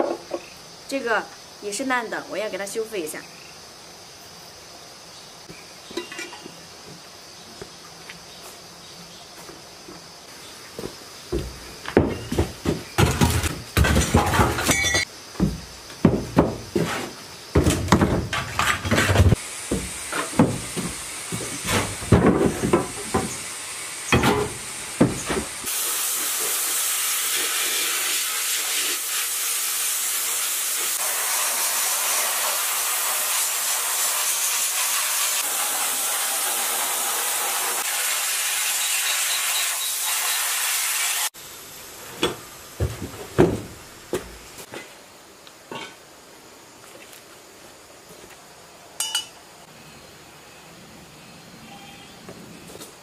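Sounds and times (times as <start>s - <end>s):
metal engine parts clattering: 13.2s - 15.1s
compressed air hissing from hose: 22.8s - 41.3s.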